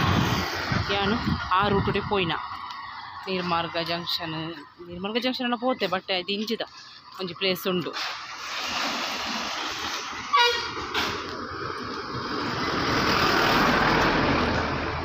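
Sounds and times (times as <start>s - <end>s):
bus passing by: 0.0s - 5.5s, 8.0s - 15.0s
short horn toot: 10.3s - 11.1s.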